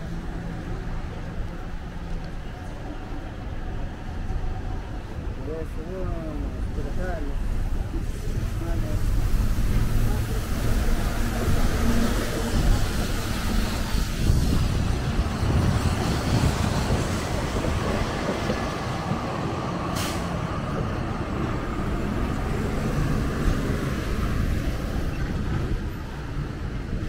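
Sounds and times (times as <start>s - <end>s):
bus passing on wet road: 0.0s - 5.5s, 6.3s - 27.0s
brief sharp hiss: 19.9s - 20.4s.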